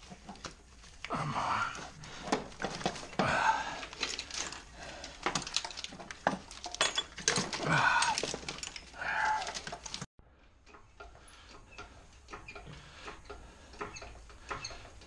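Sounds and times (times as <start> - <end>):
wiring harness clicks and rattles: 0.0 - 15.0
person grunting: 1.1 - 1.9, 7.6 - 8.3, 9.0 - 9.6.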